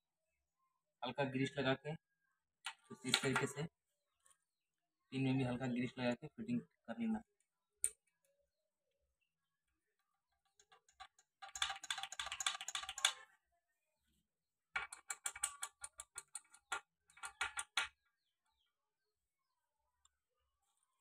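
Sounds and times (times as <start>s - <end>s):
metal clicks and taps: 14.8s - 18.0s.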